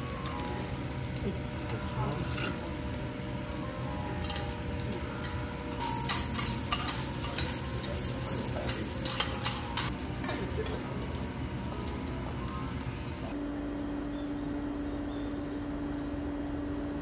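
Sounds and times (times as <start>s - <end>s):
utensils clinking and tapping: 0.0s - 13.3s
food sizzling on a griddle: 0.0s - 13.4s.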